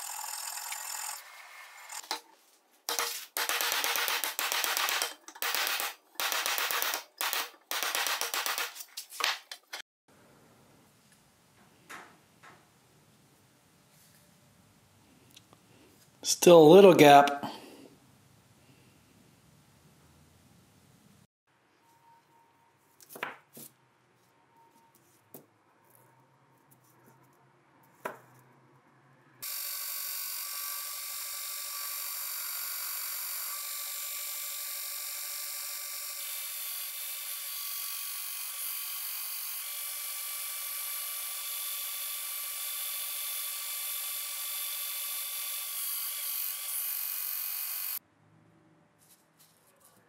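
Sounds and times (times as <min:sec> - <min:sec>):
belt grinder whining: 0:00.0 - 0:02.2, 0:29.4 - 0:48.0.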